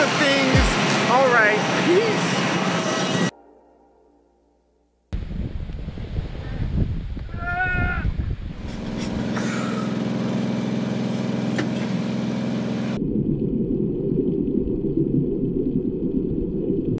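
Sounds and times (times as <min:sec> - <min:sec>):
boat engine hum: 0:00.0 - 0:03.3, 0:08.6 - 0:14.8
underwater rumbling wash: 0:13.0 - 0:17.0.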